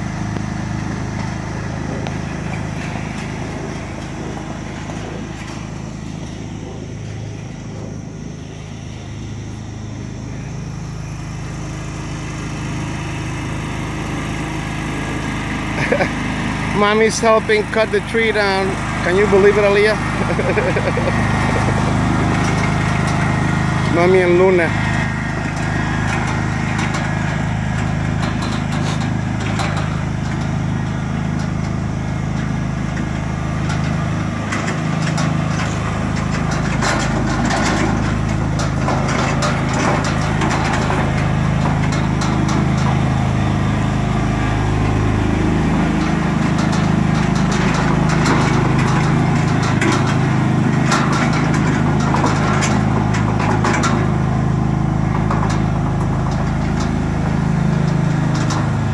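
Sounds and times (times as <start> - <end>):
lawn tractor engine running: 0.0 - 58.9.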